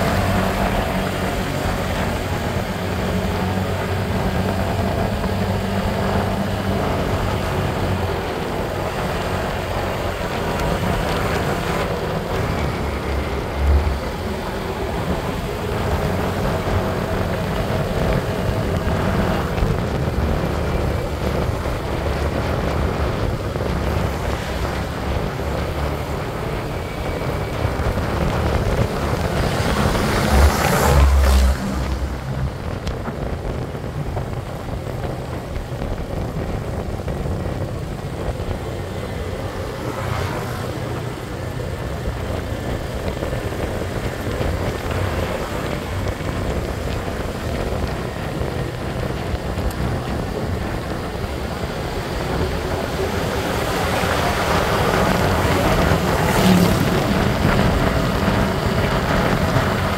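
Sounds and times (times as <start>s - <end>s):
scooter engine and tyre noise: 0.0s - 59.9s
wind rush on microphone: 0.0s - 59.9s.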